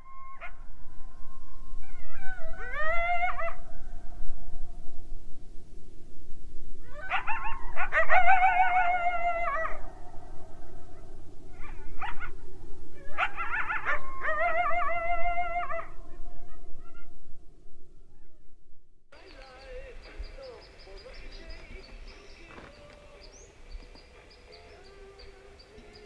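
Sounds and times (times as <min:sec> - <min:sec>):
wild canine howling: 0:00.0 - 0:05.0, 0:06.8 - 0:17.4
steady low hiss: 0:03.6 - 0:06.9, 0:19.2 - 0:26.0.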